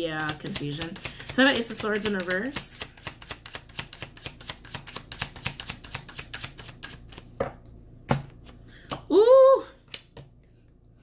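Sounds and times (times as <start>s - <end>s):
cards shuffling: 0.2s - 7.4s.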